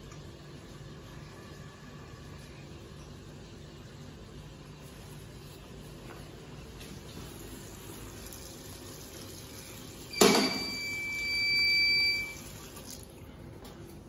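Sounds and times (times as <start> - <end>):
water gushing from tap: 7.1 - 13.2
high whistle: 10.1 - 12.4.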